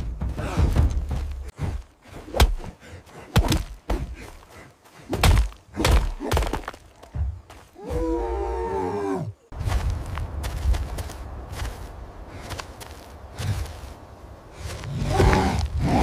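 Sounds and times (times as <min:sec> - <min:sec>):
heavy thuds: 0:00.0 - 0:04.4.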